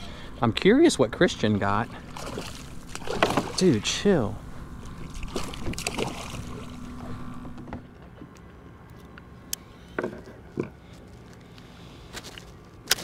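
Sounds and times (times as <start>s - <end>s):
water lapping against hull: 0.0s - 7.9s
fish splashing at water surface: 2.0s - 3.7s, 4.9s - 6.8s.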